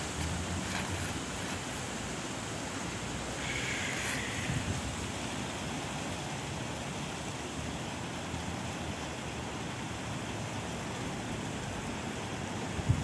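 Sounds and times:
wind through palm trees: 0.0 - 13.0
wind buffeting microphone: 4.2 - 5.2, 12.8 - 13.0.

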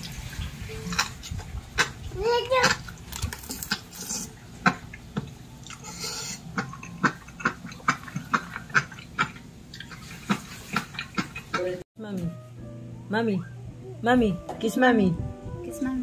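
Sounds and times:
child crunching a snack: 3.1 - 4.3.

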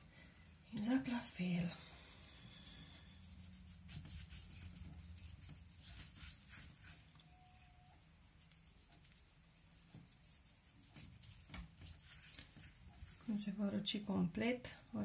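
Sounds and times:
low steady hum: 0.0 - 15.0
hands rubbing rustle: 1.9 - 7.2, 8.0 - 13.4.

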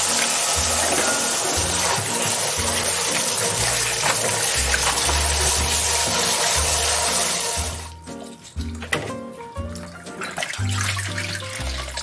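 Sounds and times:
tap water splashing on leaves: 0.8 - 5.8.

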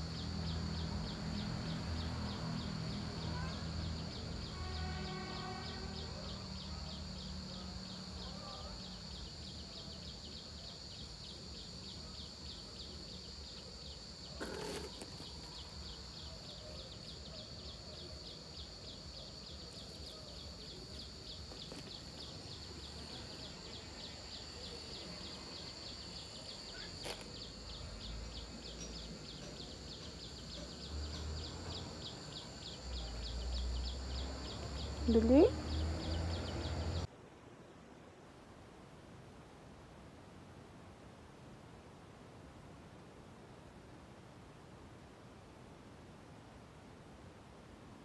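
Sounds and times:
insects chirring: 0.0 - 37.1.

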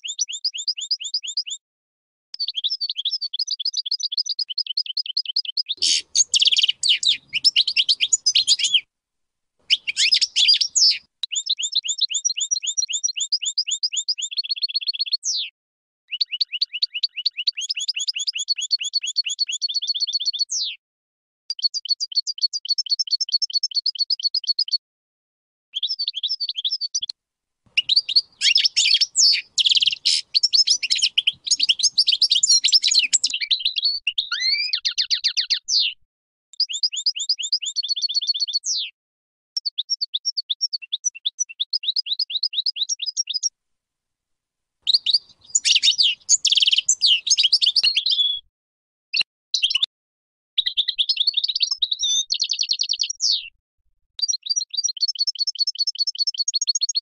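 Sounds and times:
goldfinch singing: 0.0 - 1.6, 2.4 - 8.8, 9.7 - 15.5, 16.1 - 20.8, 25.8 - 27.1, 27.8 - 35.9, 36.6 - 38.9, 39.7 - 43.5, 44.9 - 48.4, 50.6 - 53.5, 54.2 - 57.0.

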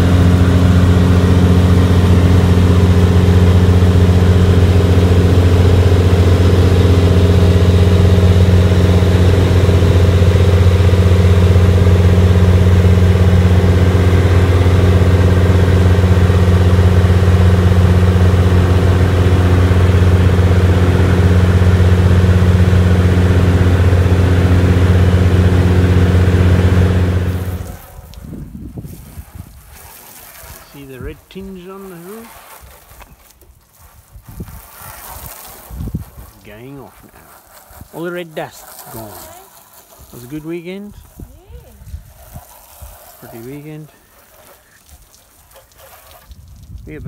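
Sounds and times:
aircraft engine droning in cockpit: 0.0 - 27.8.

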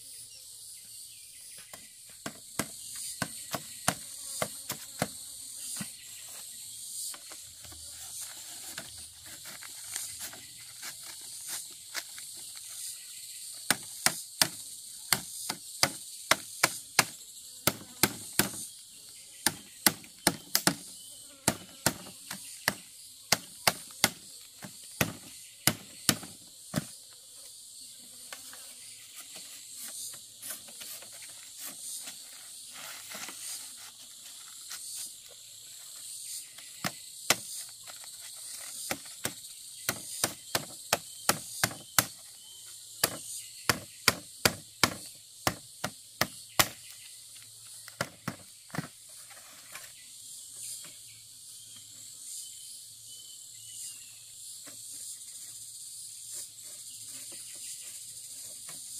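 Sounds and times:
insects droning: 0.0 - 58.9
machete striking bamboo: 1.7 - 5.2, 13.7 - 18.6, 19.4 - 20.9, 21.5 - 26.9, 36.8 - 37.5, 38.9 - 42.2, 43.0 - 47.0.

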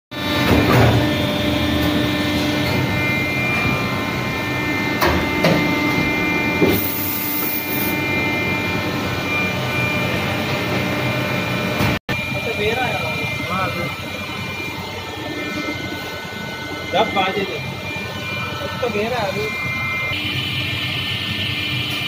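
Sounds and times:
moulding machine humming: 0.2 - 22.0.

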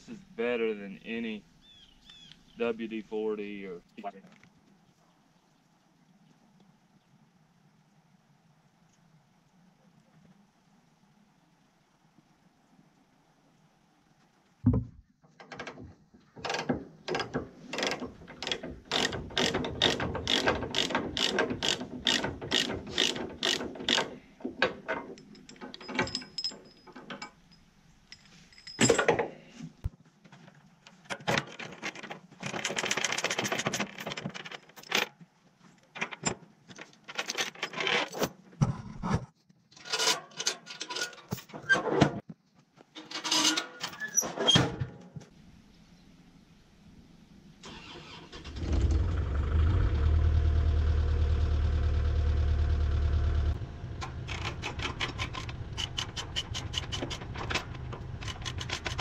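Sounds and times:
ratchet clicking: 17.8 - 24.1
chain rattling: 25.0 - 29.2, 31.5 - 35.1, 54.2 - 59.0.

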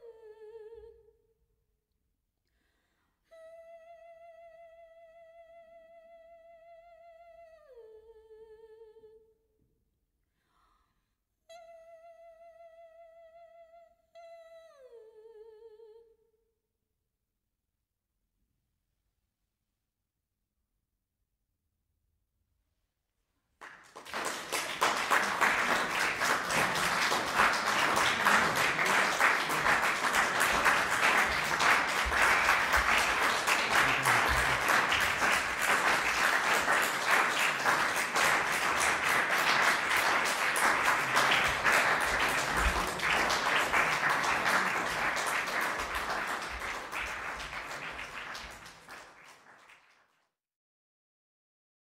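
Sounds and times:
audience applauding: 23.6 - 50.1.

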